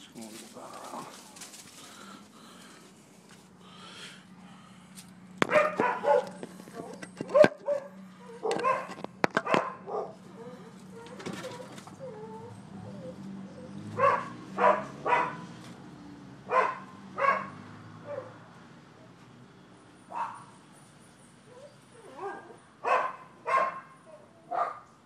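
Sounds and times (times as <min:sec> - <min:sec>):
dogs barking: 0:05.4 - 0:15.6, 0:16.4 - 0:18.5, 0:20.1 - 0:20.6, 0:21.5 - 0:25.0.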